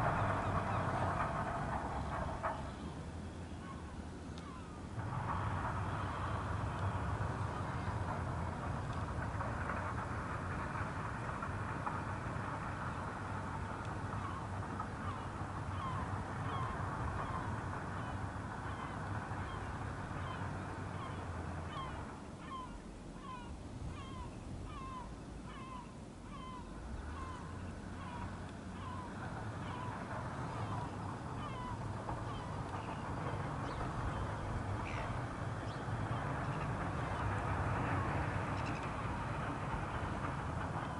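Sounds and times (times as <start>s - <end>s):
distant jet engines rumbling: 0.0s - 40.9s
bird calling: 3.5s - 4.8s, 14.1s - 37.3s.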